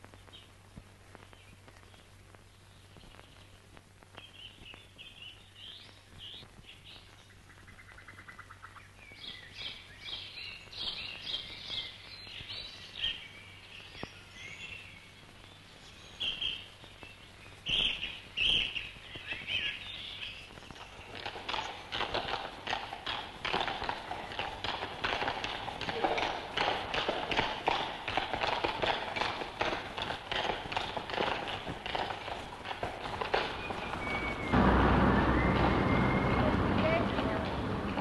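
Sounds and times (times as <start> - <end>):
songbirds chirping: 0.0 - 38.0
horse hooves clattering: 16.3 - 38.0
bird trill: 33.6 - 36.6.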